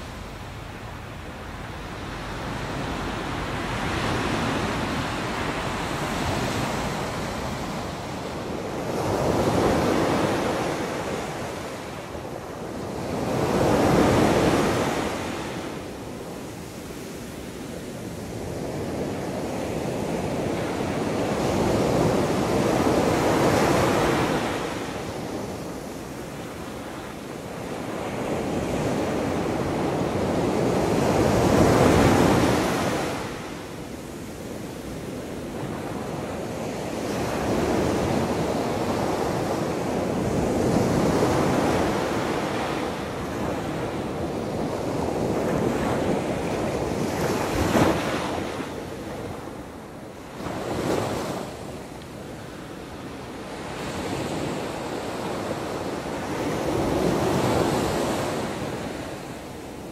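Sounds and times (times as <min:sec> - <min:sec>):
ocean waves breaking: 0:00.0 - 0:12.0.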